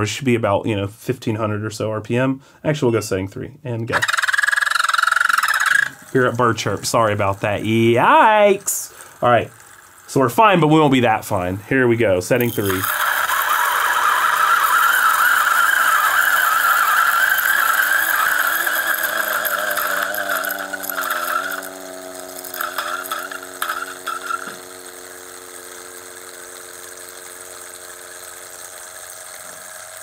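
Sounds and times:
coffee grinder squealing whine: 0:03.9 - 0:11.6, 0:12.3 - 0:30.0
grinder motor humming: 0:03.9 - 0:11.6, 0:12.3 - 0:30.0.

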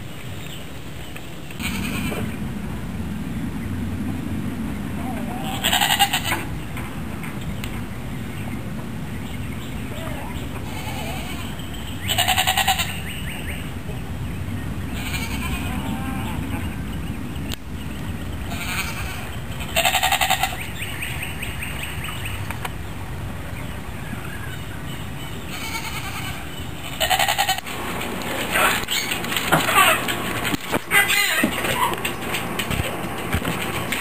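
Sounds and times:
goats bleating: 0:01.6 - 0:02.2, 0:05.4 - 0:06.4, 0:10.6 - 0:13.0, 0:15.0 - 0:16.4, 0:18.5 - 0:20.6, 0:25.5 - 0:27.6
low rumble: 0:01.6 - 0:34.0.

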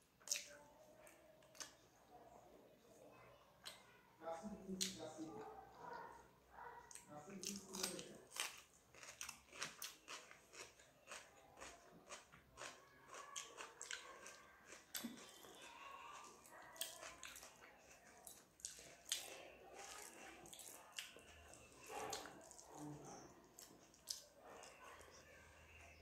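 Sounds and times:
person chewing: 0:00.2 - 0:00.6, 0:06.9 - 0:25.2
fingers mixing food: 0:06.9 - 0:26.0.

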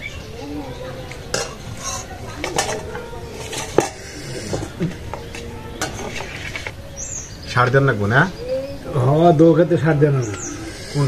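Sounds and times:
metal plates clinking: 0:01.3 - 0:06.7
spoon scraping in metal bowl: 0:01.3 - 0:06.8.

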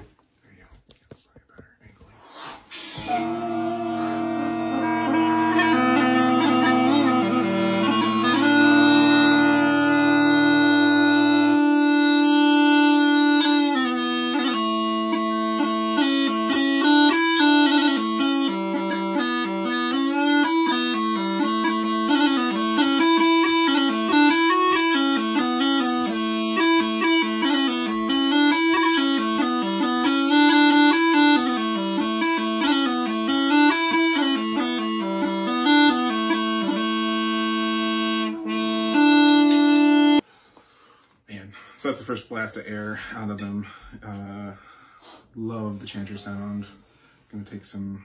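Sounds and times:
pipes drone: 0:02.1 - 0:40.2
small pipes chanter tune: 0:02.3 - 0:40.2.

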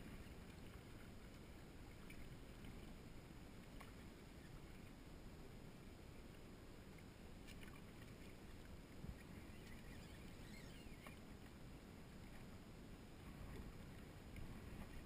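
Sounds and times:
water lapping against boat hull: 0:00.0 - 0:05.1, 0:06.1 - 0:15.0
faint high chirps: 0:09.3 - 0:11.2.

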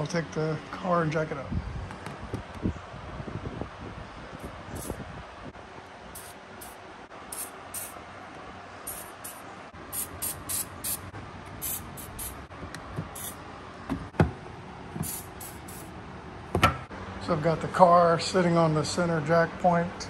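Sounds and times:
aerosol can spraying: 0:04.8 - 0:05.0, 0:06.2 - 0:08.0, 0:08.9 - 0:09.4, 0:10.0 - 0:11.0, 0:11.6 - 0:12.4, 0:13.1 - 0:13.4, 0:15.0 - 0:15.9.

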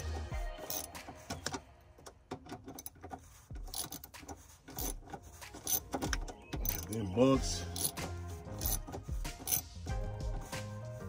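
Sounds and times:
hand tools clicking on metal: 0:00.0 - 0:09.8.

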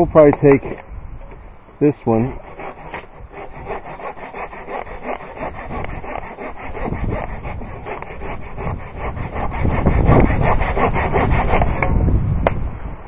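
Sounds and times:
hand saw cutting branch: 0:02.1 - 0:12.0.

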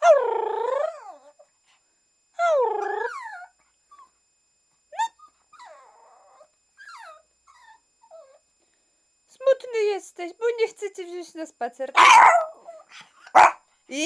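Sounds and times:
dog whining: 0:00.0 - 0:01.4, 0:02.4 - 0:04.2, 0:05.0 - 0:08.4
dog yip: 0:05.0 - 0:08.4, 0:12.0 - 0:13.6.

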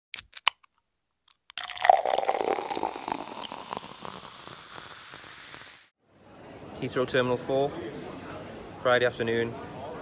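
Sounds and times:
crackling and fizzing burst: 0:01.6 - 0:05.9.

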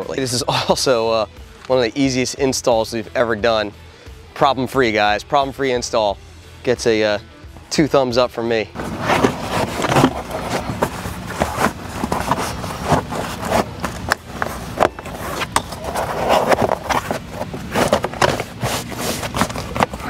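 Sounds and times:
floor mat scraping and rustling: 0:08.8 - 0:20.0.

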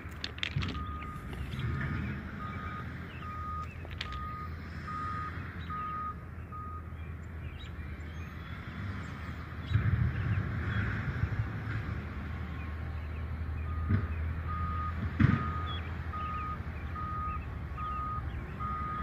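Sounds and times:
short electronic beeps: 0:00.6 - 0:01.6, 0:02.4 - 0:06.8, 0:14.5 - 0:19.0.

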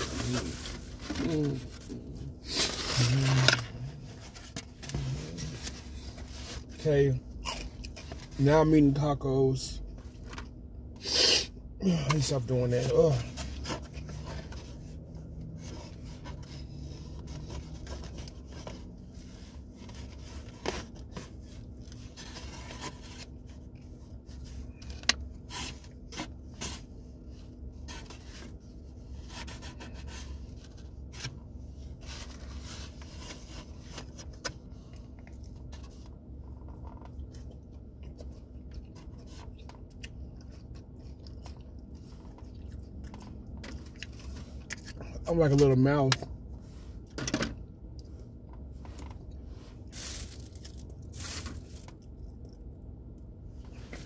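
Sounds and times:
steady low hum: 0:00.0 - 0:54.0
chewing crispy food: 0:36.6 - 0:45.3.

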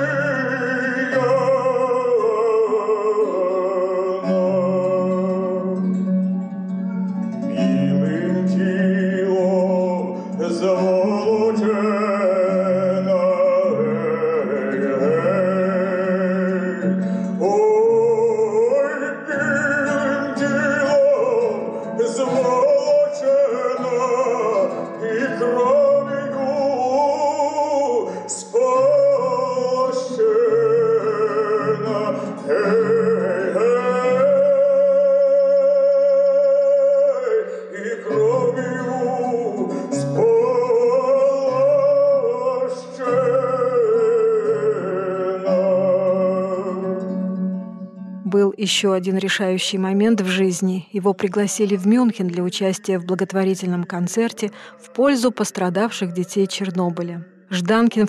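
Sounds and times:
man singing with vibrato: 0:00.0 - 0:47.5, 0:48.3 - 0:58.0
plucked lute: 0:00.0 - 0:50.6.

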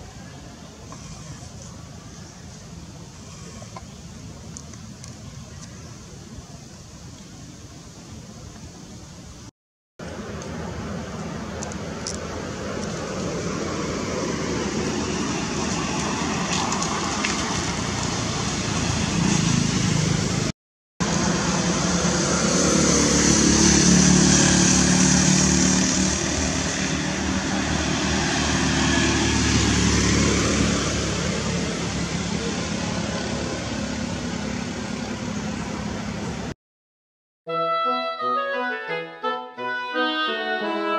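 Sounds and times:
car passing by: 0:12.1 - 0:36.5.

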